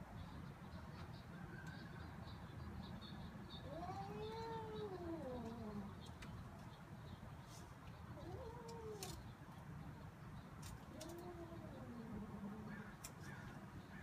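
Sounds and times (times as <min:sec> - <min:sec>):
cat yowling: 0:03.6 - 0:05.9, 0:08.2 - 0:09.2.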